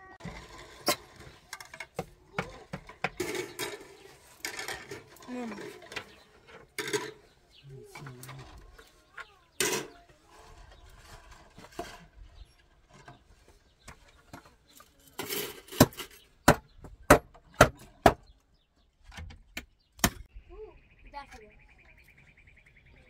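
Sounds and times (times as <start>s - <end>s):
wooden boards being struck: 1.5s - 6.2s, 15.3s - 18.3s.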